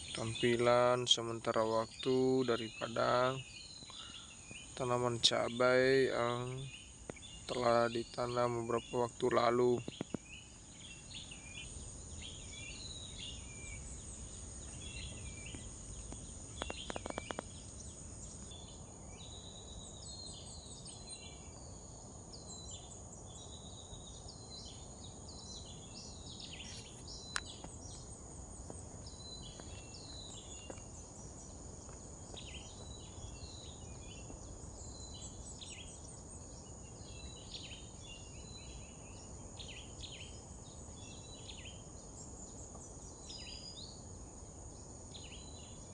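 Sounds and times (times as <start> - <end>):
bird chirps and calls: 0.0 - 21.8, 22.4 - 28.3
high-pitched insect drone: 10.8 - 22.5.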